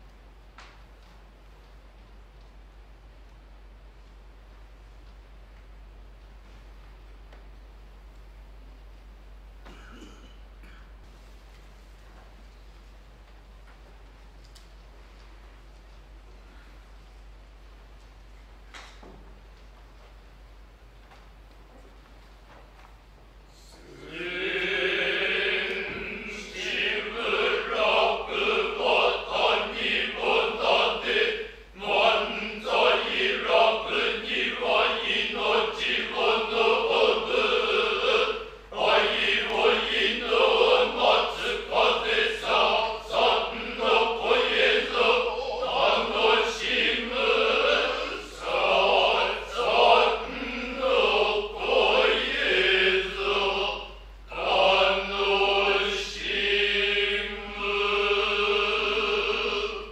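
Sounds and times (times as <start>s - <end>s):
men chanting in unison: 23.9s - 59.9s.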